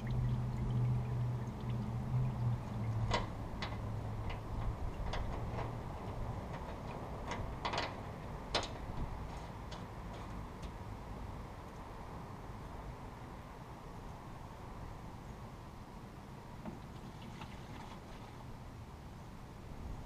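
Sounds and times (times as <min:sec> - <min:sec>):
sharp drips: 0:00.0 - 0:05.6.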